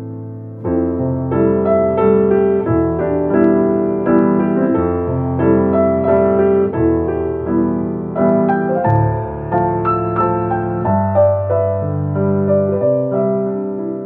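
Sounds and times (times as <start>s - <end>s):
slow piano melody: 0.0s - 14.0s.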